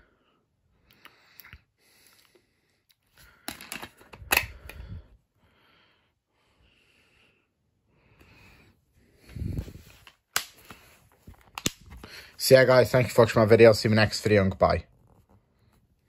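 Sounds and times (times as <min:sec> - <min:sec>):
plastic disc case clicks: 0:11.4 - 0:12.0.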